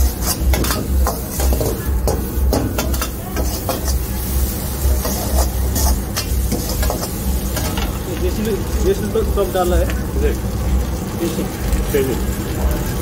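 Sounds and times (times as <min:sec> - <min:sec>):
steel ladle scraping a wok: 0:00.0 - 0:07.9
frying sizzle: 0:00.0 - 0:13.0.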